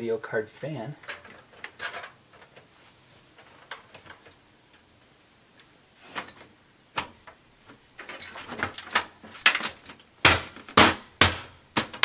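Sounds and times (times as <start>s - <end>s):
hands handling cables: 1.0s - 4.9s, 5.6s - 10.8s.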